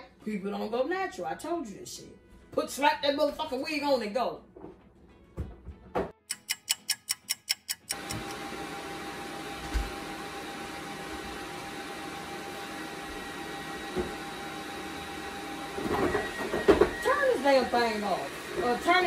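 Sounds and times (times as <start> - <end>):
clock-like ticks: 6.2 - 8.2
hair dryer blower hissing: 7.9 - 19.0.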